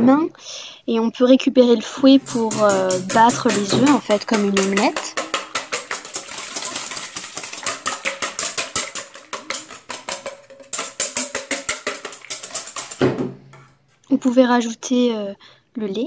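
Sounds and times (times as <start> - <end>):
whisk beating eggs in metal bowl: 2.0 - 13.7.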